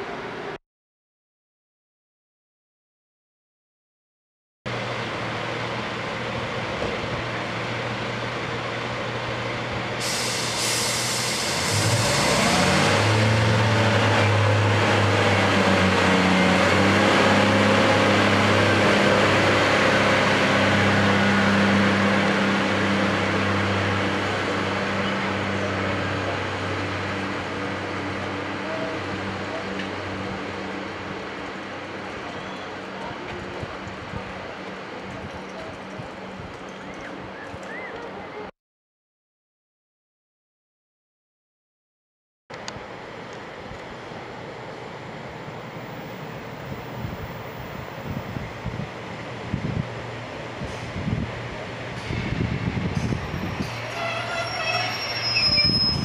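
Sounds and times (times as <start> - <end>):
diesel train engine: 4.7 - 38.5, 42.5 - 56.0
air brake hiss: 10.0 - 12.6.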